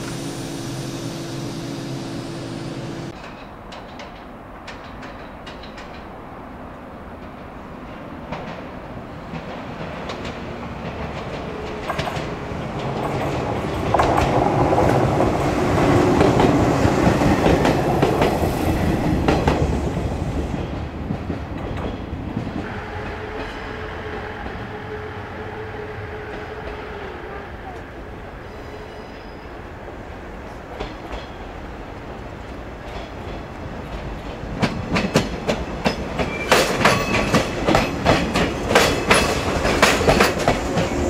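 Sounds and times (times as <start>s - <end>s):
wheels clacking over rail joints: 0.0s - 6.2s, 32.4s - 41.0s
electric train passing: 0.0s - 41.0s.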